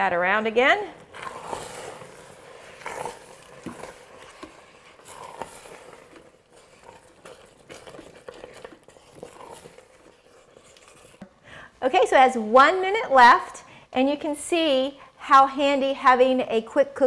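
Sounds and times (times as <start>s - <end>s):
spatula scraping metal pot: 0.2s - 11.3s.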